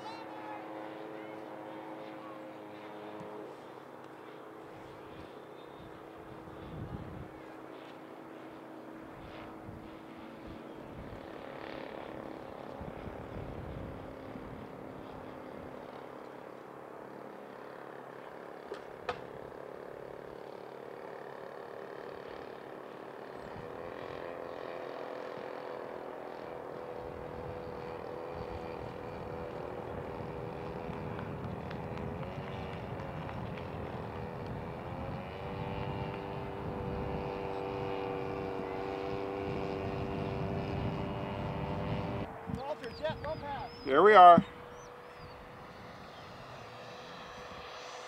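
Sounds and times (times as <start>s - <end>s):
model jet fan whining: 0.0s - 48.0s.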